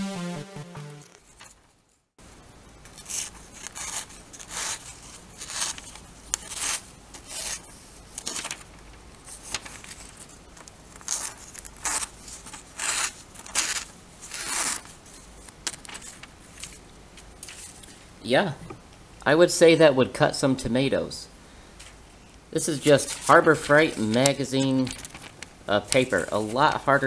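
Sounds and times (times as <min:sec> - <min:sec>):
knife slicing paper: 0:02.9 - 0:08.6.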